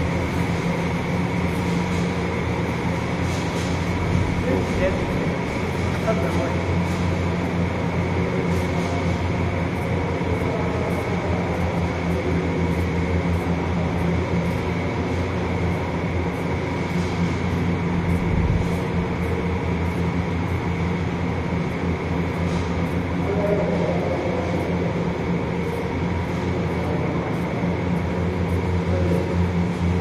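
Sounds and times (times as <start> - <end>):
footsteps ticking: 0.0 - 23.2
ventilation fans humming: 0.0 - 30.0.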